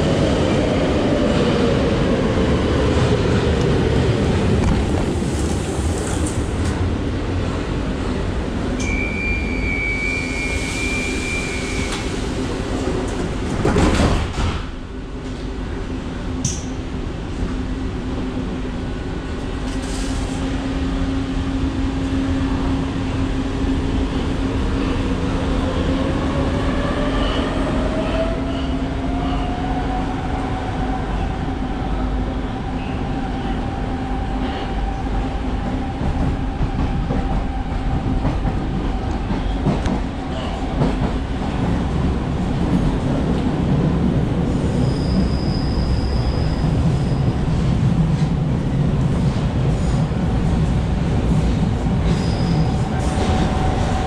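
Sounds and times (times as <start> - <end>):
wheel squeal: 44.8 - 47.3, 52.1 - 52.8.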